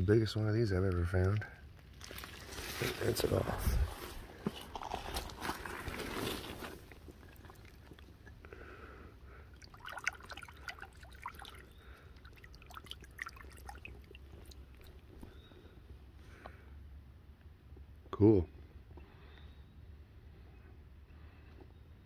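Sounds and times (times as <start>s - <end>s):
creek water splashing: 2.0s - 3.4s, 4.7s - 8.4s, 9.3s - 15.1s.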